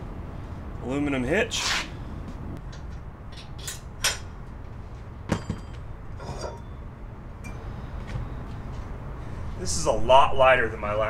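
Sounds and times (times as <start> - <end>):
metal hitch hardware clinking: 2.7 - 4.4, 5.3 - 6.8.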